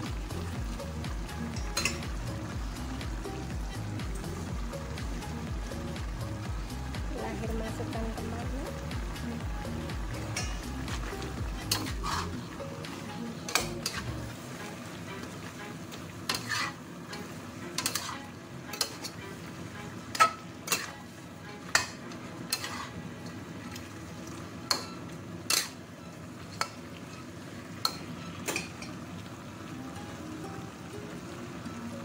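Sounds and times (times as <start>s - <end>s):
food sizzling: 0.0s - 32.0s
spatula scraping against a wok: 10.3s - 12.5s, 13.5s - 14.3s, 15.2s - 23.1s, 25.5s - 25.8s.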